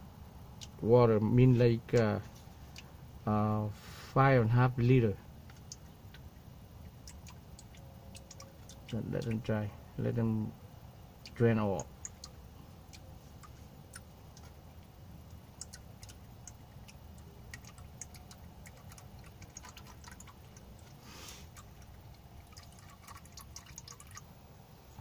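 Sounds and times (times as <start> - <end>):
oil dripping into pan: 5.4 - 9.5, 11.2 - 24.3.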